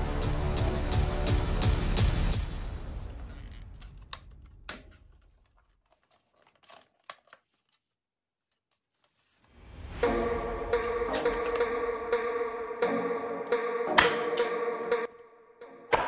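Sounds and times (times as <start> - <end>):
background music: 0.0 - 4.9, 9.6 - 16.0.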